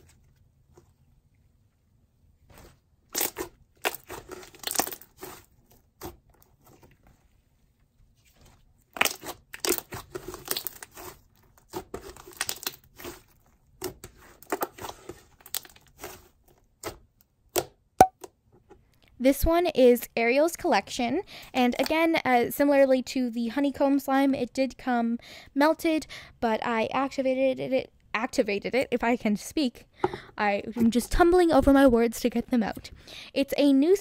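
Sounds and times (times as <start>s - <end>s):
slime squelching and crackling: 2.5s - 6.9s, 8.2s - 17.1s.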